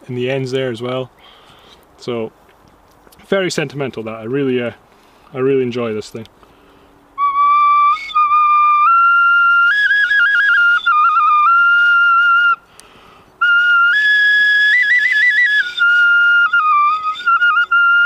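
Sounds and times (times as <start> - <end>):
bone flute playing shrill tune: 7.2 - 12.6, 13.4 - 18.0.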